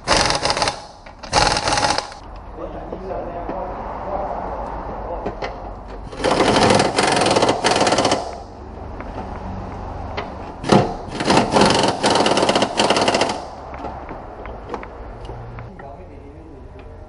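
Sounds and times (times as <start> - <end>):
power wrench hammering on bolts: 0.0 - 2.2, 6.0 - 8.5, 10.6 - 13.6.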